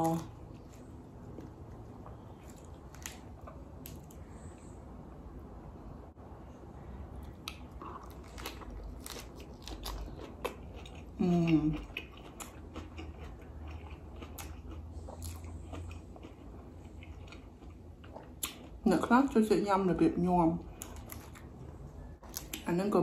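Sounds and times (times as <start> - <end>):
crunchy biting and chewing: 7.2 - 11.2, 11.8 - 18.8.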